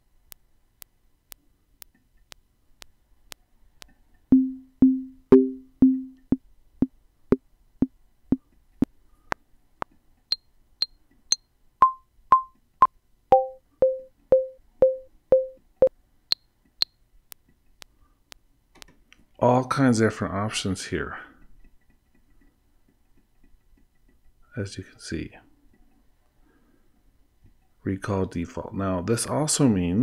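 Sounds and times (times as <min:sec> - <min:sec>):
metronome clicking: 0:04.3 - 0:06.4, 0:11.8 - 0:12.6, 0:13.3 - 0:16.4.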